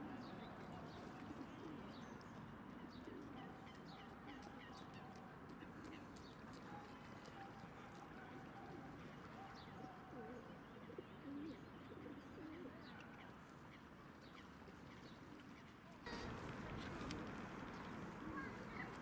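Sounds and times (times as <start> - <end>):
low wavering coo-like calls: 16.1 - 19.0.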